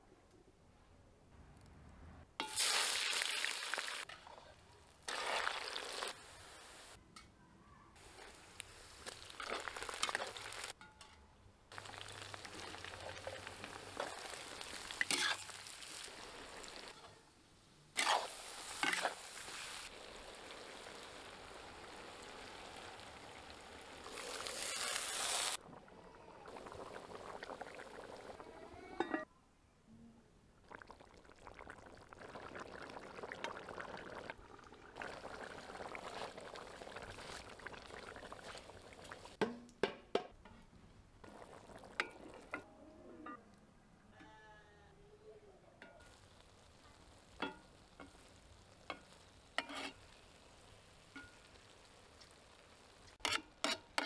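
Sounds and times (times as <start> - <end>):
meat and vegetables sizzling in oil: 2.4 - 4.1, 4.9 - 7.0, 8.0 - 10.8, 11.7 - 25.6, 46.0 - 54.0
water hissing in hot oil: 2.4 - 4.1, 5.0 - 7.0, 11.7 - 17.0, 18.0 - 25.6.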